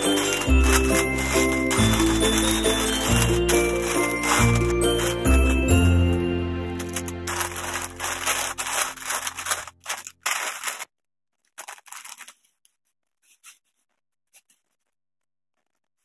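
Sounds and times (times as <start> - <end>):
ribbon crackling faintly: 0.0 - 5.9, 6.8 - 10.9
wrapping paper crinkling: 0.0 - 12.6.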